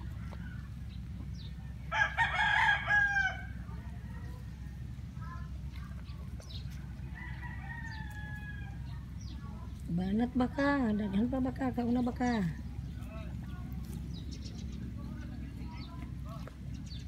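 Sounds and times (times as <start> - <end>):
steady low rumble: 0.0 - 17.0
rooster crowing: 1.9 - 3.6, 7.0 - 8.9.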